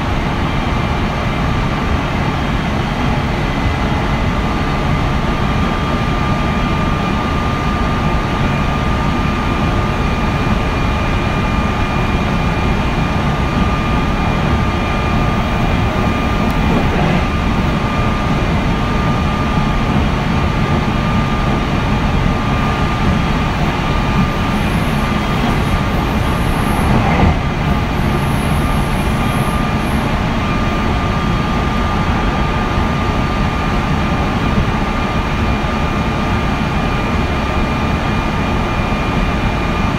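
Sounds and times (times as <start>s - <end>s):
train wheels rumbling on rails: 0.0s - 39.9s
steady high tone: 12.1s - 19.6s, 22.3s - 30.7s.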